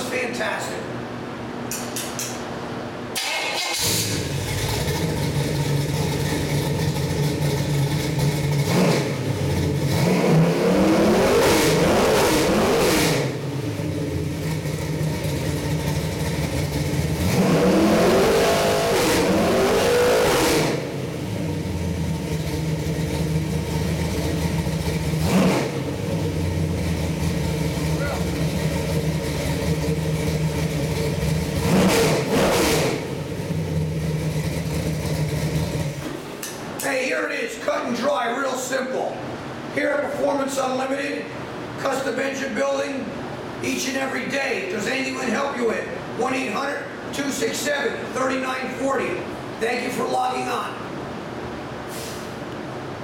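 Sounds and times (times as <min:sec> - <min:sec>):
engine idling: 0:03.2 - 0:10.0, 0:13.3 - 0:17.4, 0:20.8 - 0:31.8, 0:33.0 - 0:36.2
engine revving: 0:03.2 - 0:36.1.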